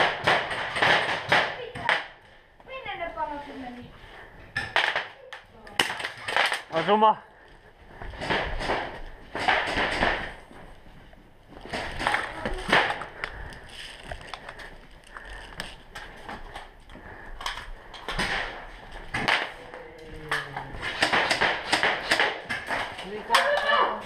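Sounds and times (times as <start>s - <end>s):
footsteps and gear clattering: 10.2s - 19.2s.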